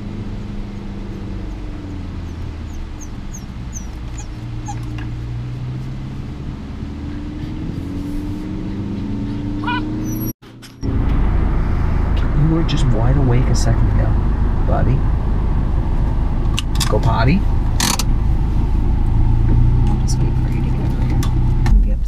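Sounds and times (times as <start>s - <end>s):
moving car rumble: 0.0s - 22.0s
puppy whimpering: 2.2s - 5.0s, 9.6s - 10.3s.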